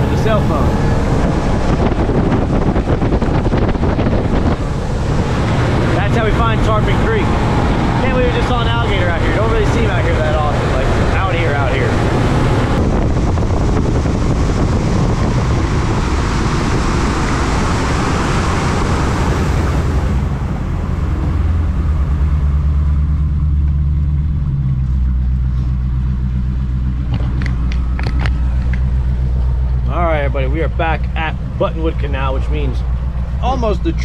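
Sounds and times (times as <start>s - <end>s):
rush of wind and water: 0.0s - 22.4s
outboard engine drone: 0.0s - 34.0s.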